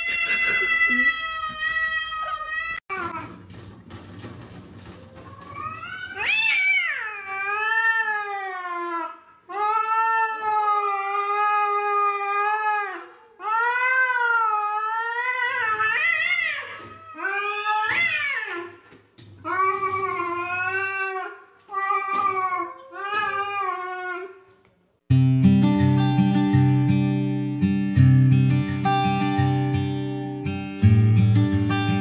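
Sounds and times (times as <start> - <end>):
cat yowling: 0.0 - 2.8, 5.3 - 18.7.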